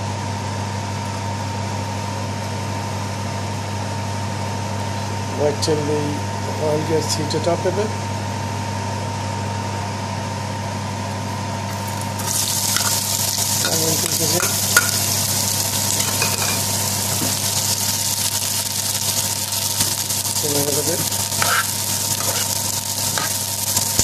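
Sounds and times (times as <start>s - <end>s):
onions sizzling in oil: 11.6s - 24.0s.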